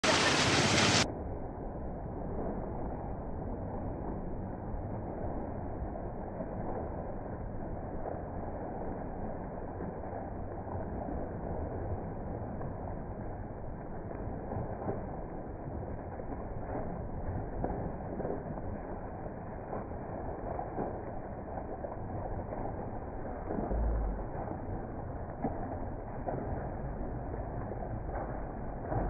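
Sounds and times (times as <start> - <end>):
sea surf rushing: 0.0 - 1.1.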